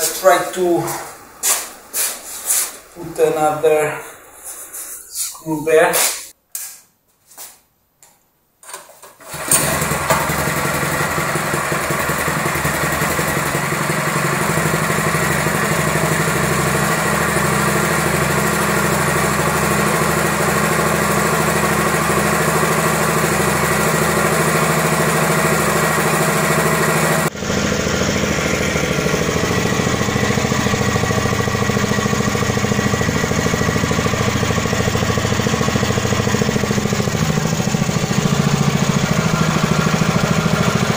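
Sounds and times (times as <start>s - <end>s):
recoil starter pulls: 8.6s - 40.9s
small engine running: 9.2s - 40.9s.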